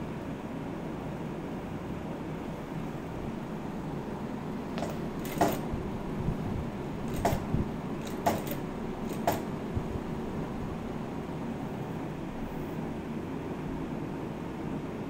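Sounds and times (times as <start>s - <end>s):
steady background hum: 0.0s - 15.0s
sewing machine clacks: 4.8s - 5.8s, 7.0s - 9.6s.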